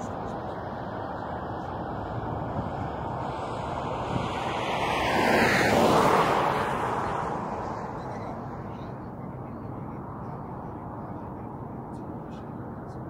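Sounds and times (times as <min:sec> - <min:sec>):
jet aircraft passing: 0:00.0 - 0:13.0.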